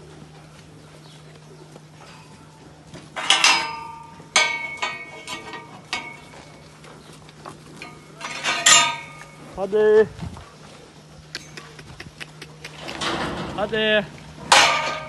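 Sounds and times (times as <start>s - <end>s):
metal railings clanging: 1.9s - 9.9s, 12.6s - 15.0s.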